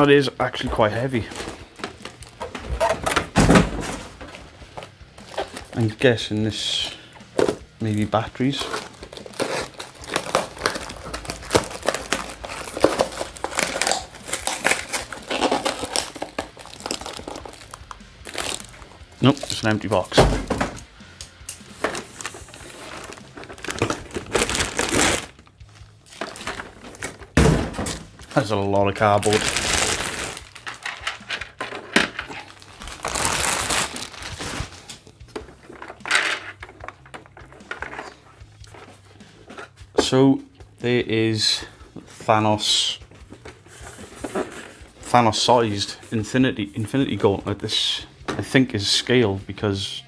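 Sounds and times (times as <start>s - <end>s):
cardboard box crinkling: 8.6s - 20.0s, 21.8s - 25.4s, 26.1s - 27.4s, 28.9s - 34.9s.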